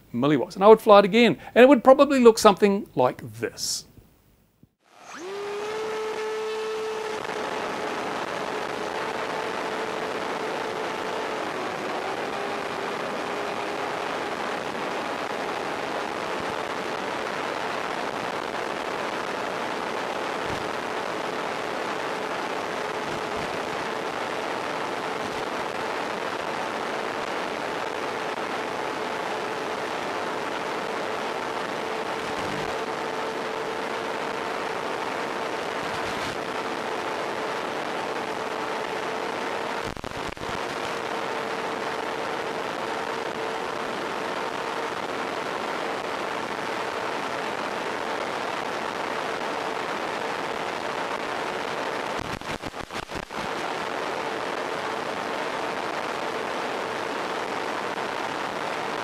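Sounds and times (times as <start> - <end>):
motor and propeller droning: 4.9 - 15.9
steady rushing noise: 19.9 - 45.5.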